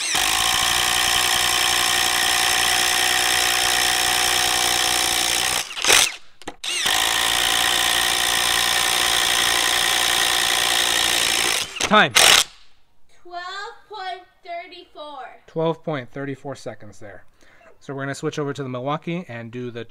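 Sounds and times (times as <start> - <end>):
impact driver hammering: 0.0 - 12.6.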